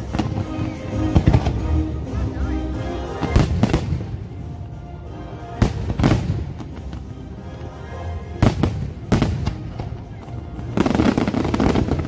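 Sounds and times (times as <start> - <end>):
music playing: 0.0 - 12.0
fireworks bursting: 8.3 - 12.0.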